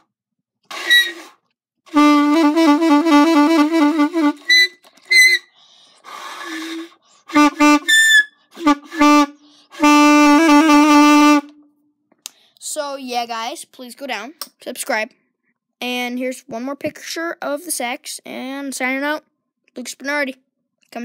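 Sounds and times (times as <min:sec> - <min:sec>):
saxophone squeaks: 0:00.7 - 0:01.4, 0:02.0 - 0:05.5, 0:06.2 - 0:11.4
saxophone notes: 0:01.9 - 0:05.5, 0:06.4 - 0:11.6.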